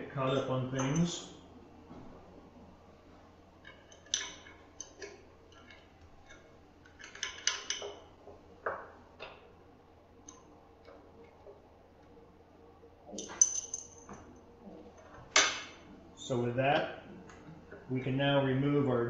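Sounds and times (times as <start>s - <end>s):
wrenches clinking on metal: 3.6s - 8.0s, 13.2s - 14.1s.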